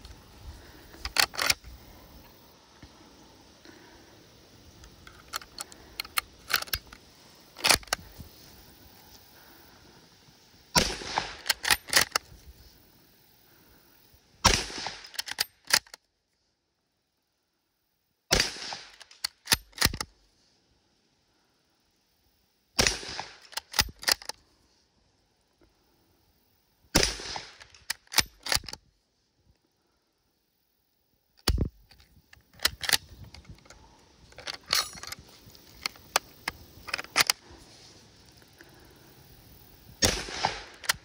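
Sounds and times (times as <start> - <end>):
metallic clicks of rifle loading: 0.6 - 3.0, 4.7 - 8.3, 10.8 - 12.4, 14.8 - 16.1, 18.4 - 20.2, 22.8 - 24.5, 27.0 - 28.9, 31.4 - 37.6, 40.0 - 41.0
rifle bolt clacking: 1.0 - 1.6, 5.0 - 7.0, 7.6 - 8.0, 11.4 - 12.2, 15.0 - 16.0, 18.9 - 20.1, 23.4 - 24.4, 27.6 - 28.8, 31.4 - 33.8, 40.6 - 41.0
rifle shots: 10.7 - 12.2, 14.4 - 15.8, 18.3 - 19.9, 22.8 - 24.1, 26.9 - 28.6, 40.0 - 41.0.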